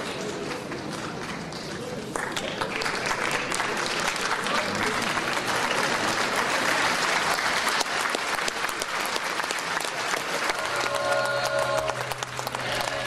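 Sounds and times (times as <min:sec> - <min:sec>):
audience applauding: 0:00.0 - 0:13.0
held note or chord: 0:10.4 - 0:13.0.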